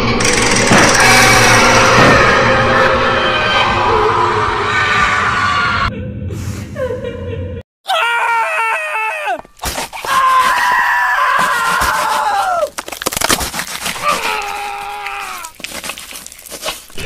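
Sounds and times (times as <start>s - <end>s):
loud drawn-out screams: 0.9s - 5.9s, 7.9s - 9.4s, 10.1s - 12.7s, 14.0s - 15.5s.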